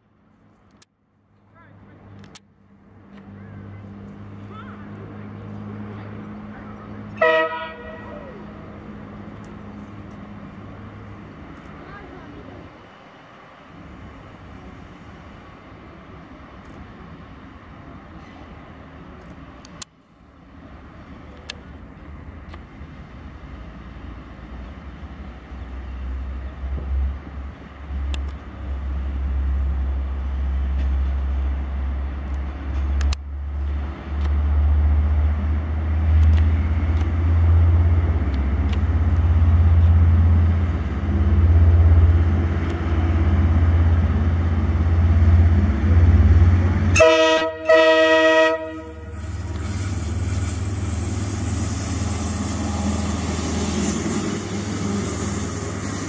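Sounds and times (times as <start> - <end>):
diesel locomotive engine rumble: 0.0 - 56.0
locomotive horn toot: 7.2 - 8.4, 46.9 - 49.5.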